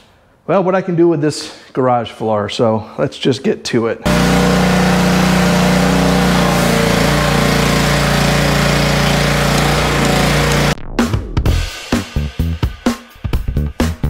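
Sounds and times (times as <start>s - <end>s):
high-pressure water spraying: 4.1s - 10.8s
pressure washer engine running: 4.1s - 10.8s.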